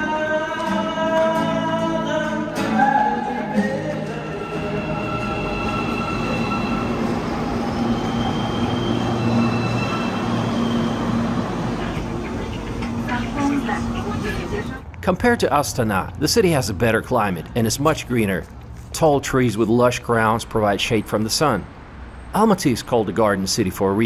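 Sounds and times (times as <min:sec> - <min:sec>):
music with singing voice: 0:00.0 - 0:06.7
metro train rumbling and whining: 0:02.6 - 0:15.0.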